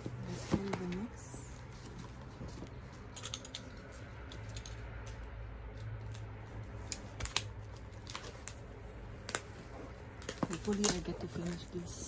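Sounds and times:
fingernails tapping shrink wrap: 0:10.2 - 0:11.9.

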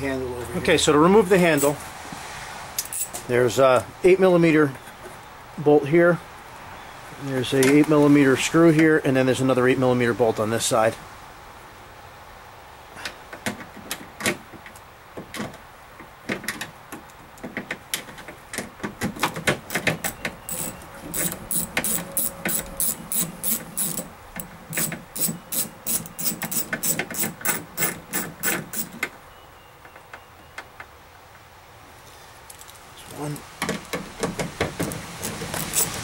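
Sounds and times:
tool clicks and knocks: 0:16.3 - 0:29.2
ratchet wrench clicking: 0:20.5 - 0:24.1, 0:24.7 - 0:28.9, 0:35.6 - 0:36.0.

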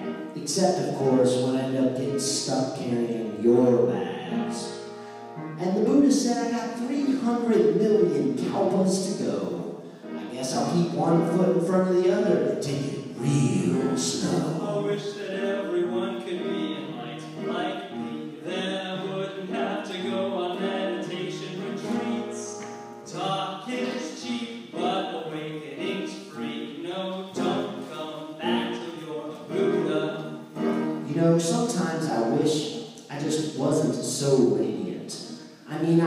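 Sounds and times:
voices singing: 0:00.0 - 0:04.8, 0:10.2 - 0:33.8.

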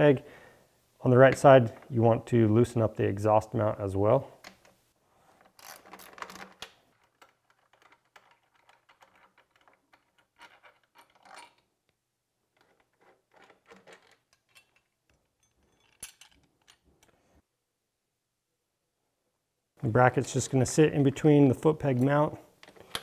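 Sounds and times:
metal clicks and clinks: 0:06.1 - 0:11.7, 0:12.6 - 0:17.1.

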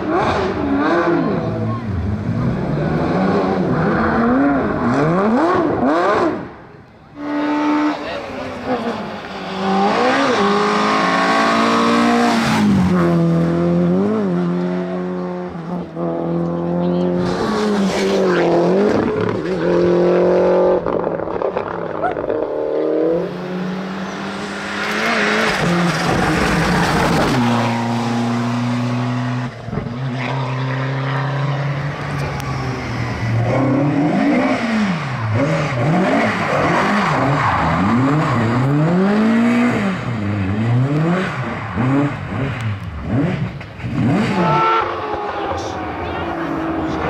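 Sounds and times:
engine revving up and down: 0:00.0 - 0:06.5, 0:09.5 - 0:47.0
rally car engine accelerating: 0:00.0 - 0:47.0
second car engine: 0:00.0 - 0:47.0.

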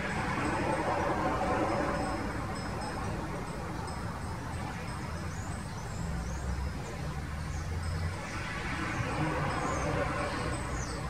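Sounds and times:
road traffic rumble: 0:00.0 - 0:11.0
vehicle passing: 0:05.9 - 0:11.0.

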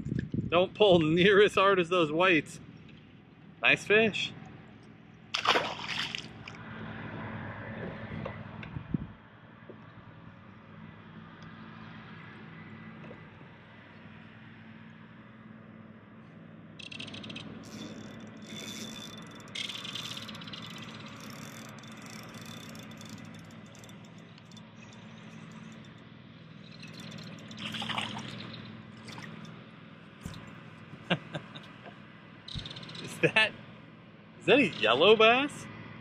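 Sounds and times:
water splashing: 0:05.3 - 0:06.6, 0:26.8 - 0:29.5.

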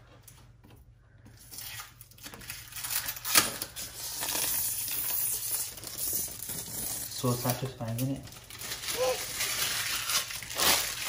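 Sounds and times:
plastic film crinkling: 0:01.4 - 0:11.0.

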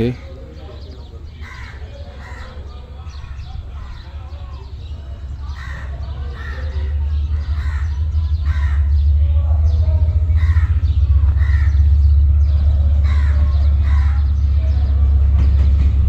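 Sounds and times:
diesel locomotive rumble: 0:00.0 - 0:16.0
crows cawing: 0:01.3 - 0:02.8, 0:05.5 - 0:09.1, 0:10.3 - 0:14.5.

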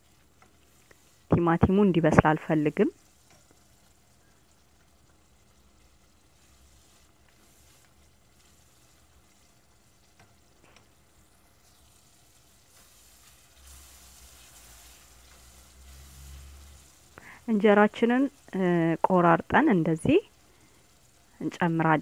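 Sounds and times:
onions sizzling in a pot: 0:00.0 - 0:22.0
wooden spoon stirring: 0:02.3 - 0:17.2.

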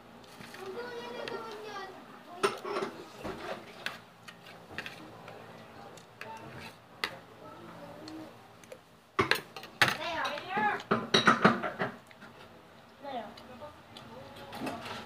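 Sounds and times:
faint chewing: 0:02.6 - 0:08.9.

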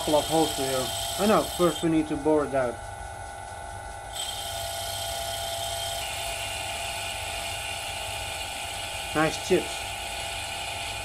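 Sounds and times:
lathe cutting hiss: 0:00.0 - 0:02.3, 0:04.2 - 0:11.0
lathe motor hum and whine: 0:00.0 - 0:11.0.

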